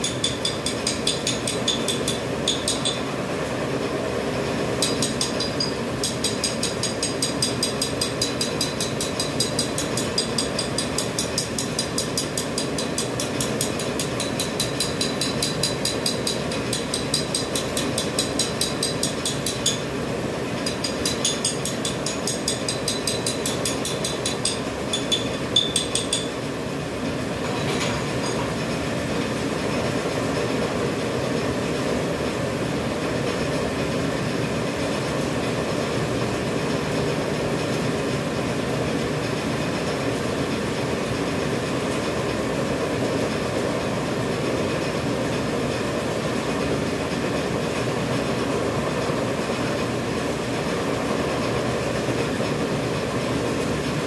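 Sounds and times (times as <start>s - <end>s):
machine mechanical hum: 0.0s - 54.0s
fast regular machine clicking: 4.8s - 19.9s.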